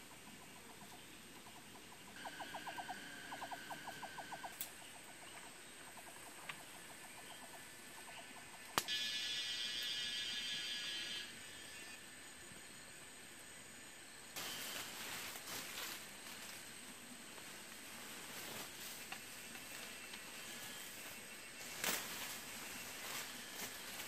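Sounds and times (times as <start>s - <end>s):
repeated pitched animal calls: 0.0s - 12.0s
steady high buzz: 8.8s - 24.0s.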